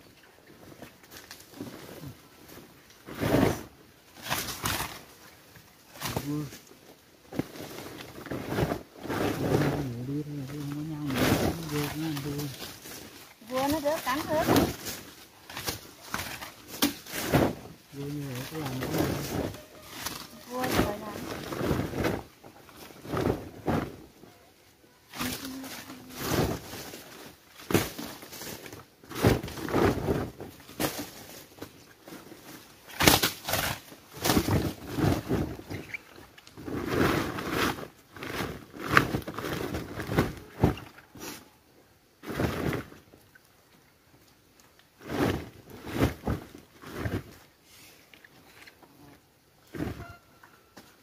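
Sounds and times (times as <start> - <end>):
bamboo shoots clunking together: 0.6 - 24.2, 25.1 - 41.5
plastic sack rustling: 0.6 - 41.6, 42.2 - 43.2, 44.9 - 47.6, 49.6 - 50.3.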